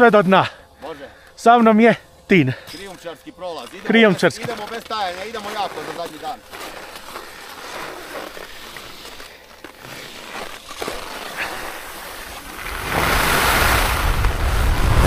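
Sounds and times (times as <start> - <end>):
skis on snow: 2.8 - 15.0
wind rushing over microphone: 12.6 - 15.0.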